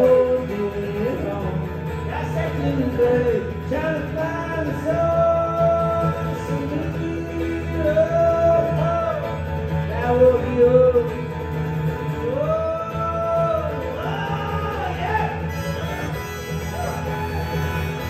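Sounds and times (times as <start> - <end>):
strummed acoustic guitar: 0.0 - 18.0
man singing long notes: 12.2 - 18.0.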